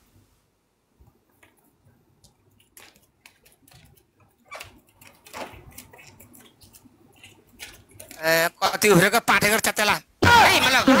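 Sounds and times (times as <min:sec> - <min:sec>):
rustles of person dancing: 0:00.9 - 0:08.3.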